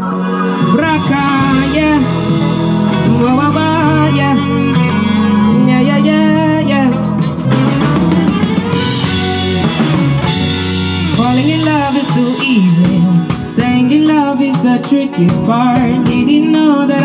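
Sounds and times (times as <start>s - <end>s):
man singing ad-libbed vocals: 0.0s - 7.1s, 11.1s - 17.0s
drum kit: 0.0s - 17.0s
electric guitar: 0.0s - 17.0s.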